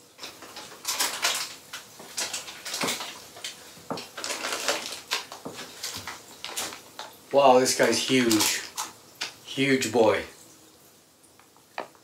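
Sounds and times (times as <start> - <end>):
plastic and paper crinkling: 0.0 - 9.4.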